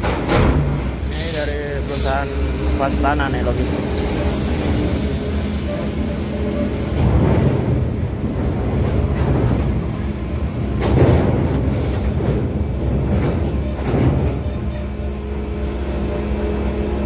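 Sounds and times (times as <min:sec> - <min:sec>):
heavy truck rumble: 0:00.0 - 0:17.0
metal clanks of wheels on plates: 0:06.4 - 0:15.4.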